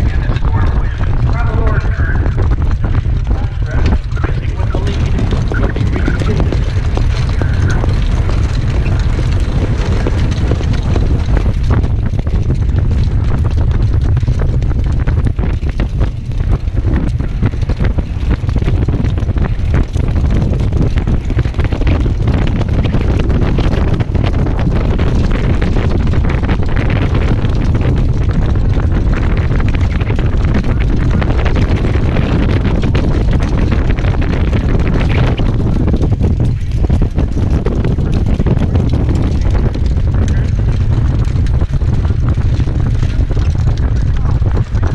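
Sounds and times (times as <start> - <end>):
wind noise on microphone: 0.0 - 44.9.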